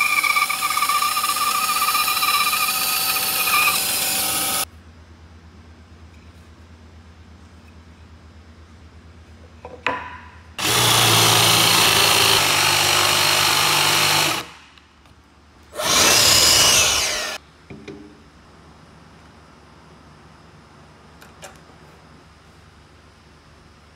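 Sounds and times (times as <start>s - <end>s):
cordless drill boring into wood: 0.0s - 4.6s, 10.6s - 14.6s, 15.8s - 17.4s.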